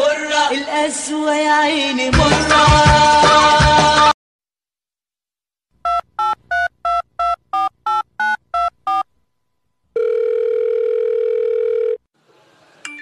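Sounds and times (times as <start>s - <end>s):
steady phone-line tone: 5.9s - 9.1s, 10.0s - 12.0s
telephone keypad beeps: 5.9s - 9.1s.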